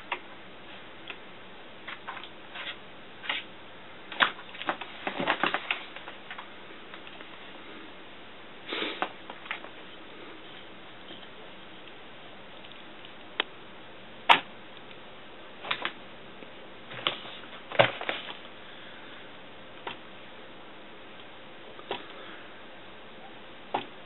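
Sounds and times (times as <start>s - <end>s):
papers rustling: 4.1s - 7.6s, 16.9s - 18.5s.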